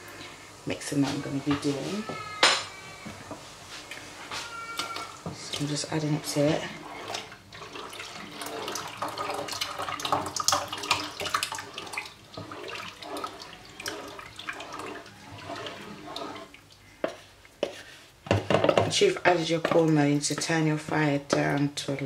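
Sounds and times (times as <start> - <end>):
wooden spoon stirring: 0.1 - 22.0
slurry pouring into boiling water: 5.1 - 16.7.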